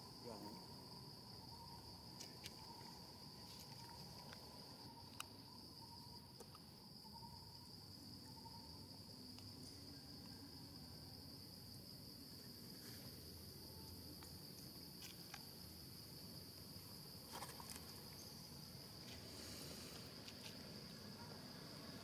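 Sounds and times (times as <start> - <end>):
high-pitched insect chirring: 0.0 - 11.4.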